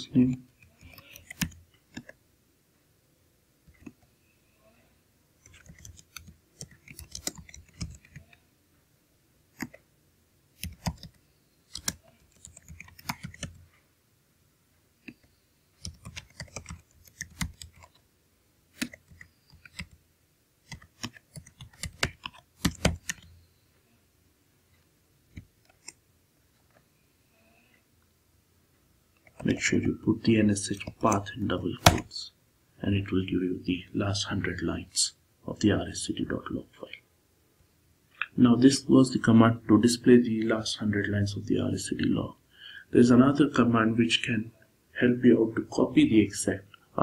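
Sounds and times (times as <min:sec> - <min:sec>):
computer keyboard typing: 0:00.6 - 0:02.2, 0:05.4 - 0:08.3, 0:10.6 - 0:13.7, 0:15.1 - 0:18.0, 0:18.8 - 0:20.0, 0:20.7 - 0:23.4.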